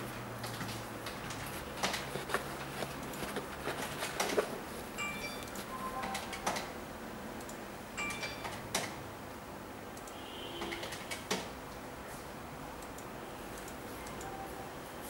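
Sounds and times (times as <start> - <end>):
sneaker handling clicks and rustles: 0.4 - 5.8.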